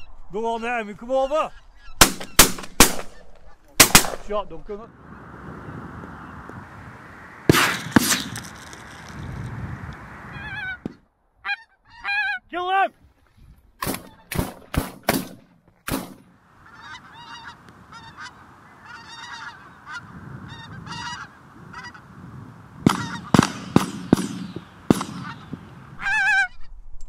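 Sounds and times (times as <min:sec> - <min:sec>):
shotguns firing: 0:02.0 - 0:03.2, 0:03.8 - 0:04.4, 0:07.5 - 0:08.6, 0:13.8 - 0:16.2, 0:22.9 - 0:25.7
geese honking: 0:10.2 - 0:12.5, 0:16.4 - 0:22.2, 0:22.8 - 0:26.6.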